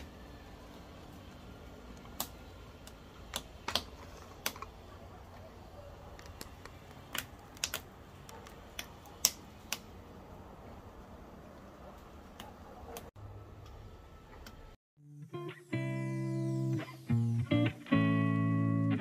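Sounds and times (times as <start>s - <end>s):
firewood crackling and popping: 0.0s - 4.8s, 6.2s - 8.0s, 8.7s - 9.9s
low steady background noise: 0.0s - 14.8s.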